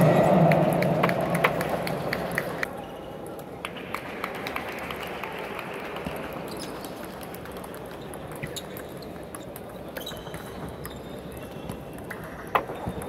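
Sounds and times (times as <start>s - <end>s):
steady background hum: 0.0s - 2.8s.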